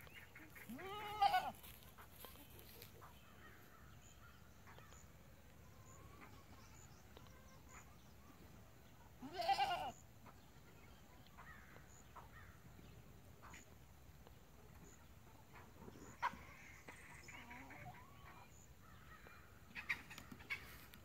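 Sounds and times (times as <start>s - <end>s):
bleat-like animal call: 0.7s - 1.6s, 9.2s - 10.0s.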